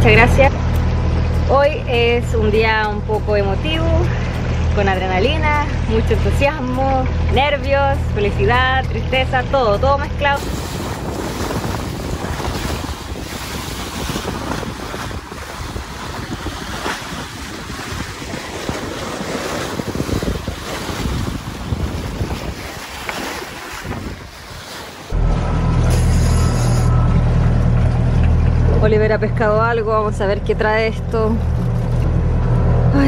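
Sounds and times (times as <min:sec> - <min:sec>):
low rumble: 0:00.0 - 0:18.4, 0:25.1 - 0:33.0
water rushing along hull: 0:00.0 - 0:33.0
wind buffeting microphone: 0:00.0 - 0:33.0.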